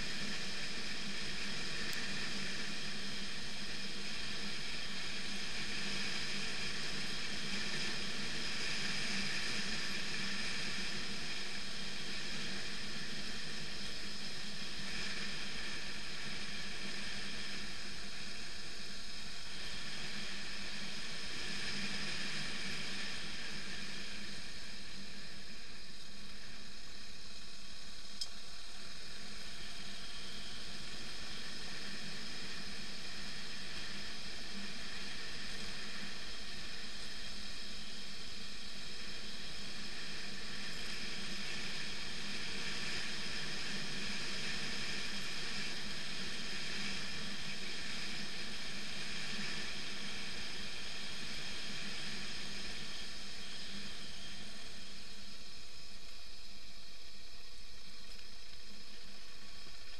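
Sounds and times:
wind and tyre noise: 0.0s - 59.9s.

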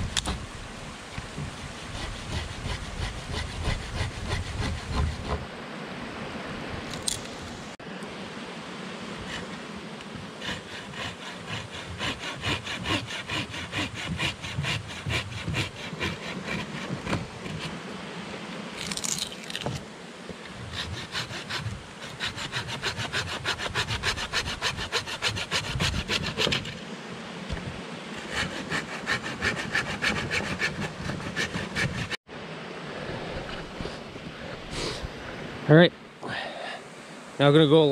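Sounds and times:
hand saw cutting wood: 1.8s - 5.5s, 10.3s - 17.8s, 20.6s - 26.8s, 28.2s - 32.2s.

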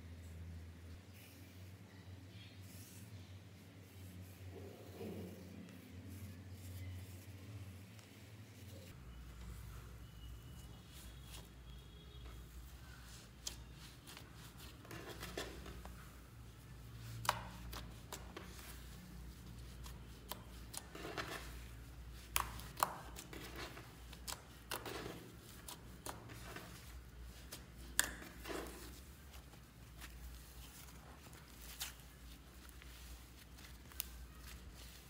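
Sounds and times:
slime squishing: 17.0s - 35.0s.

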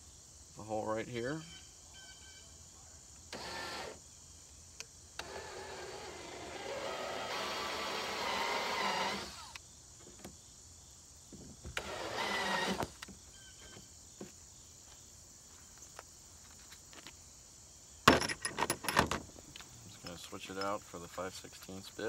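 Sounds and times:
cordless drill whining: 3.3s - 4.0s, 5.2s - 9.6s, 11.8s - 13.1s.

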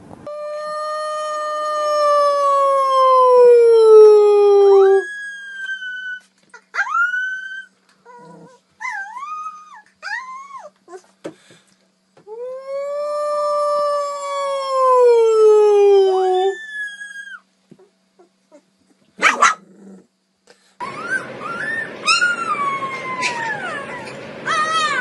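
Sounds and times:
puppy howling: 0.3s - 11.0s, 12.3s - 17.5s, 20.8s - 25.0s
puppy yelping and whining: 4.8s - 11.1s, 16.1s - 17.5s, 20.8s - 25.0s.

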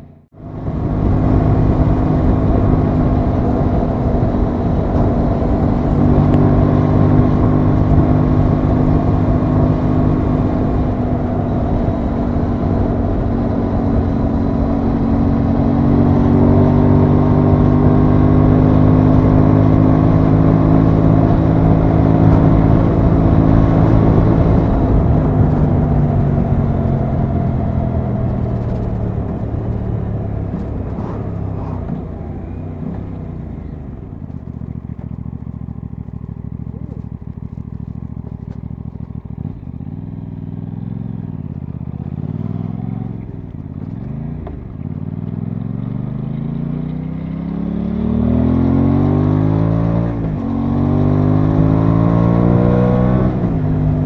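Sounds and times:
wind noise: 0.0s - 34.5s
motorcycle engine at road speed: 0.0s - 54.0s.

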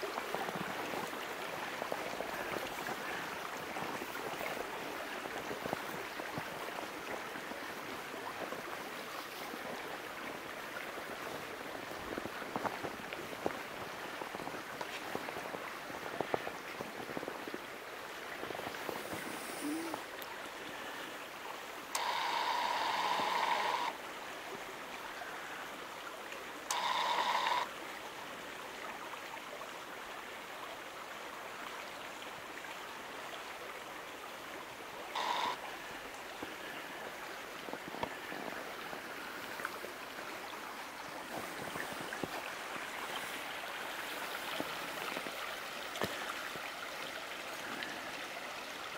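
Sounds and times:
stream rushing over gravel: 0.0s - 48.9s.

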